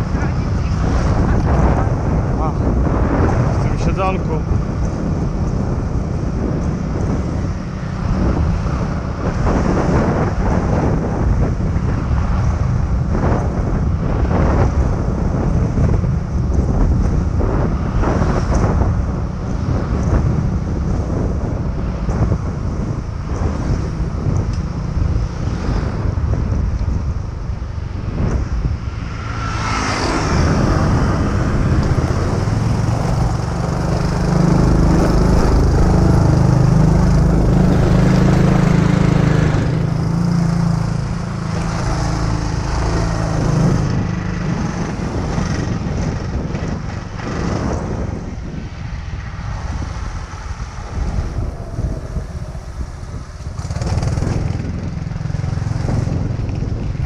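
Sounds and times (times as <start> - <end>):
wind rushing on microphone: 0.0 - 57.0
motor scooter engine running: 30.1 - 48.2, 49.7 - 57.0.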